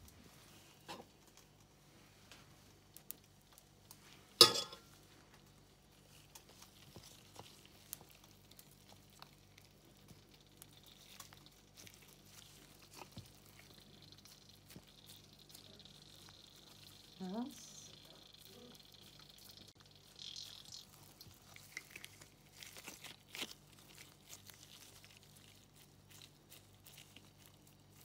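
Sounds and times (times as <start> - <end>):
faint steady hum: 0.0 - 28.0
gloved hands squishing food: 0.0 - 28.0
metal spoon clinking on tray: 4.4 - 4.9.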